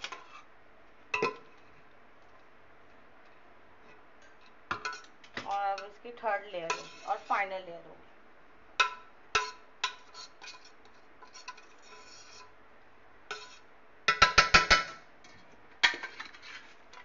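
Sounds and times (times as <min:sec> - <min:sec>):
metal spoon tapping metal pot: 0:08.8 - 0:10.0, 0:14.1 - 0:15.0.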